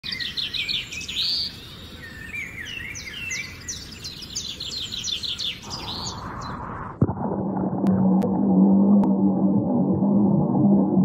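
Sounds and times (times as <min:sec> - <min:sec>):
small birds chirping: 0:00.0 - 0:06.7.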